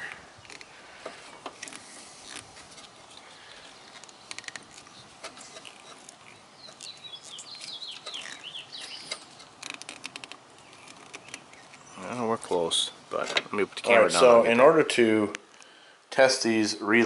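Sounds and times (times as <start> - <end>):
bird chirping: 3.1 - 13.0.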